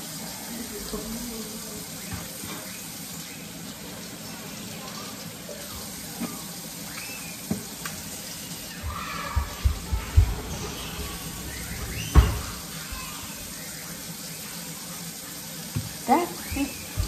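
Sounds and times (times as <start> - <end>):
tap running into sink: 7.0 - 8.0, 8.8 - 13.1, 15.7 - 17.0.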